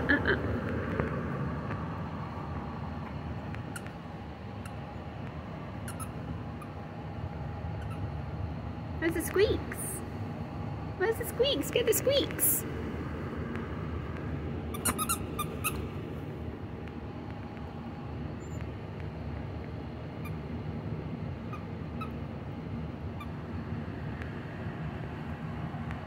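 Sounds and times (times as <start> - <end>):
low background noise: 0.0 - 26.0
squeaky dog toy squeaks: 5.8 - 6.2, 7.8 - 8.0, 14.7 - 15.9.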